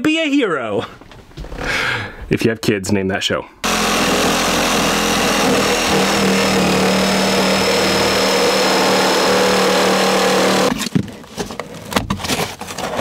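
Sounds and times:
electric saw cutting wood: 3.6 - 10.8
knocks and scrapes of wood: 10.5 - 13.0.

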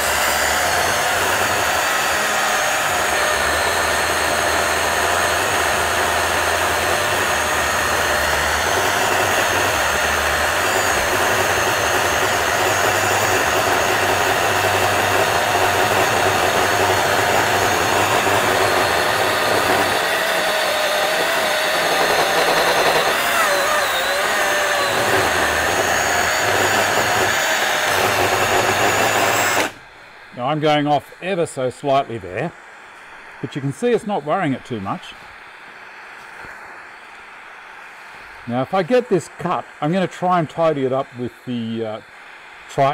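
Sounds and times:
chainsaw cutting log: 0.0 - 29.8.

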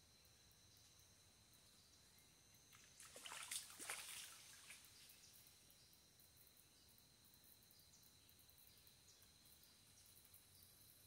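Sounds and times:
faint high-pitched hum: 0.0 - 11.0
sinker splashing into water: 2.9 - 4.9.

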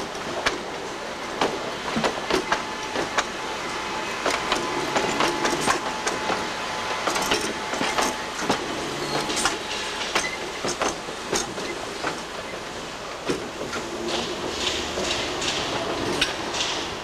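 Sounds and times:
tram running rumble: 0.0 - 17.0
tram wheels clicking and clanking: 0.0 - 17.0.

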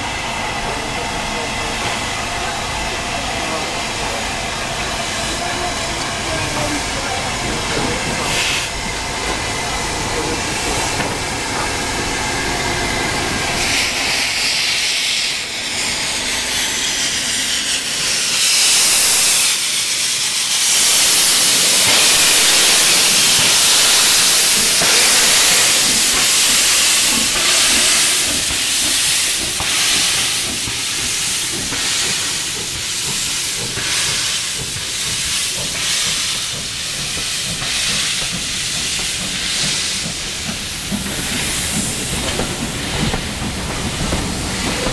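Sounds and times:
locomotive chuffing beats: 0.0 - 44.9
train coaches rolling past: 0.0 - 44.9
hiss of escaping steam: 0.3 - 44.9.

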